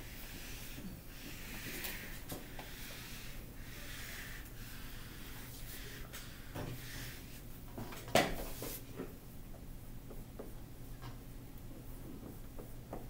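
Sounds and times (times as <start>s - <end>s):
eraser wiping whiteboard: 0.0s - 7.5s, 8.4s - 8.9s
steady low hum: 0.0s - 13.0s
marker writing on whiteboard: 0.1s - 7.4s.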